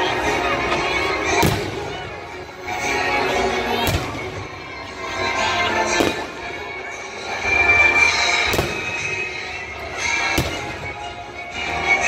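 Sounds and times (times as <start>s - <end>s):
music: 0.0s - 12.0s
fireworks bursting: 1.3s - 2.0s, 3.8s - 4.4s, 5.9s - 6.6s, 8.2s - 11.1s.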